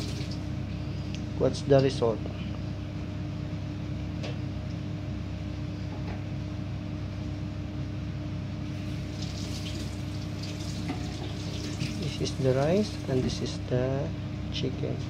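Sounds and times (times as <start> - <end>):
low electrical hum with hiss: 0.0 - 15.0.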